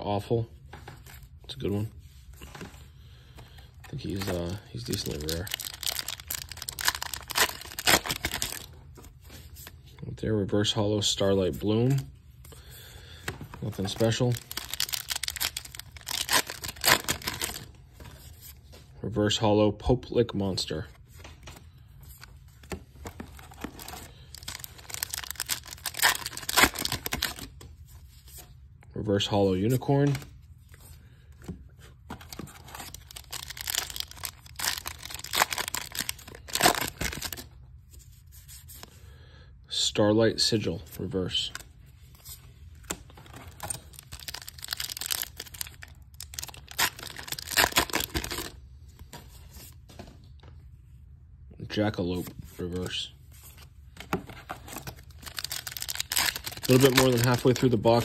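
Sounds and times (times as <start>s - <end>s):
foil wrapper crinkling and tearing: 3.9s - 8.7s, 13.6s - 17.7s, 23.4s - 27.5s, 32.2s - 37.5s, 43.2s - 48.6s, 54.4s - 58.0s.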